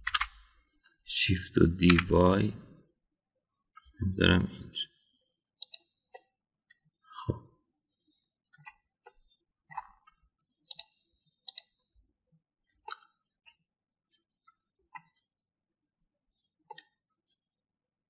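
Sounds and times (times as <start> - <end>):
keyboard key presses: 0.0 - 0.3
mouse clicks: 5.6 - 5.9, 10.7 - 11.7.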